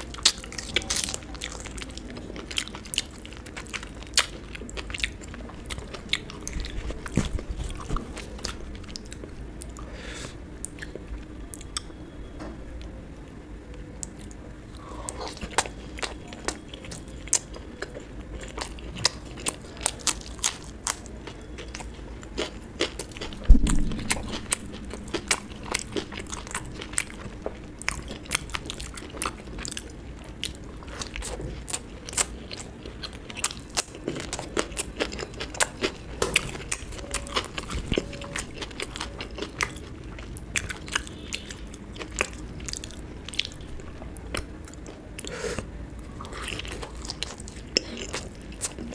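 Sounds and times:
person biting and chewing: 18.6s - 41.4s
low thump: 23.4s - 25.9s.

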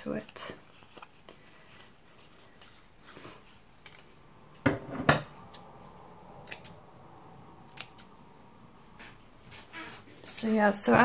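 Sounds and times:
scissor blades clicking: 6.4s - 6.8s, 7.7s - 8.1s.

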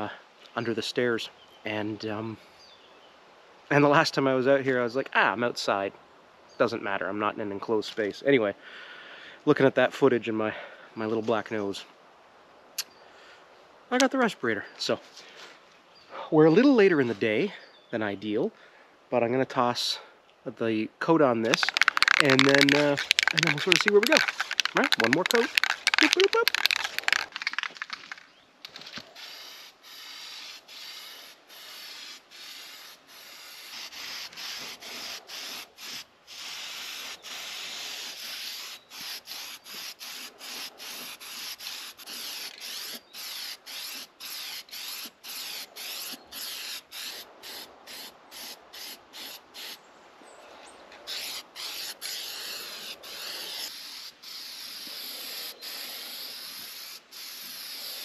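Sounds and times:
spray-paint can hissing: 21.5s - 28.2s, 29.2s - 49.8s, 51.1s - 58.0s.

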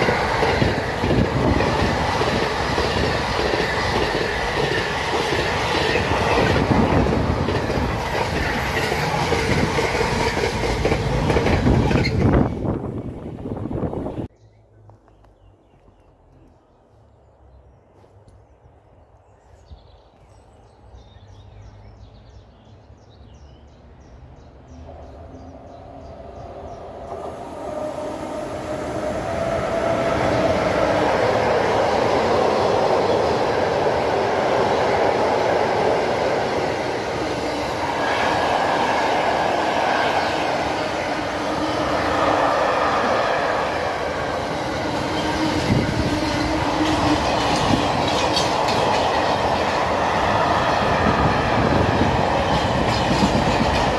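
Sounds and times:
freight train passing: 0.0s - 14.3s, 23.6s - 53.9s
train wheel clicks: 46.8s - 49.8s, 52.5s - 53.9s.

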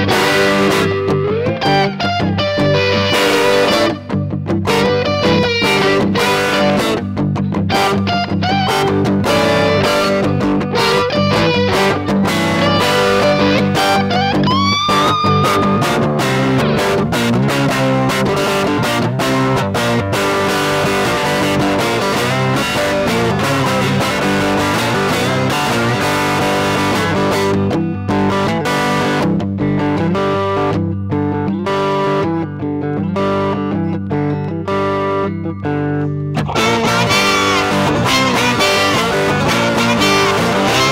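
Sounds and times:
electric guitar blues rhythm: 0.0s - 40.9s
harmonica: 36.5s - 40.9s.

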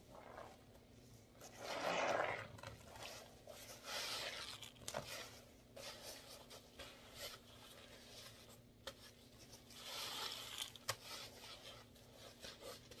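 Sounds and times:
wet sponge squeezing: 1.4s - 5.1s.

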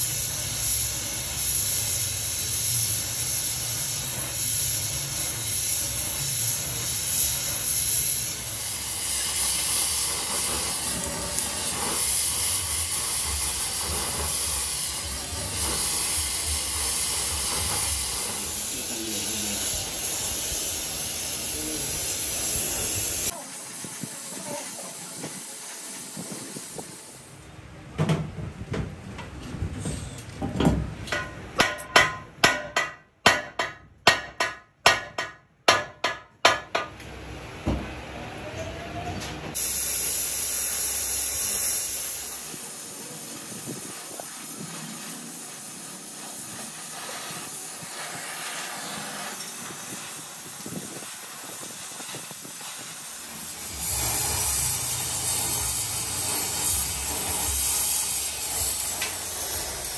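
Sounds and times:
welding torch flame hissing: 0.0s - 27.5s, 39.5s - 59.9s.

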